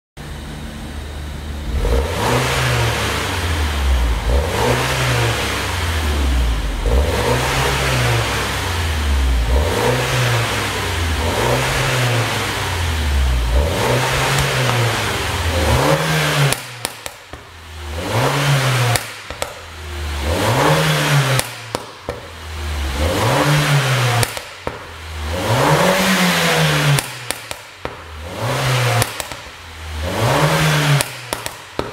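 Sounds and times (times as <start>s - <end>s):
car engine revving: 1.0s - 31.9s
exhaust pops and crackles: 14.1s - 15.3s, 15.9s - 17.6s, 18.8s - 19.8s, 21.3s - 22.4s, 24.2s - 25.1s, 26.8s - 28.2s, 28.9s - 29.7s, 30.8s - 31.9s.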